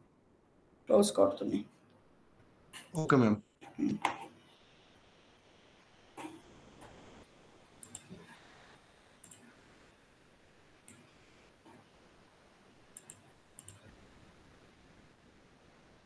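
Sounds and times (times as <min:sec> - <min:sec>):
faint room hiss: 0:00.0 - 0:16.0
computer mouse clicks: 0:07.8 - 0:08.4, 0:09.2 - 0:09.4, 0:10.8 - 0:11.1, 0:13.0 - 0:13.9.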